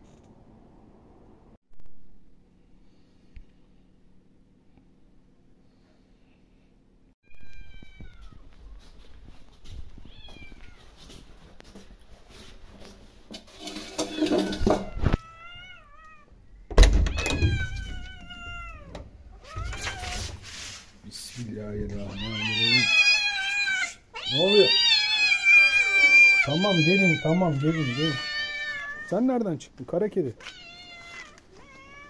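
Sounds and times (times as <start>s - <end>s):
cats meowing: 7.2s - 8.8s, 10.0s - 11.0s, 13.9s - 16.3s, 17.0s - 20.4s, 21.8s - 29.4s, 30.3s - 32.0s.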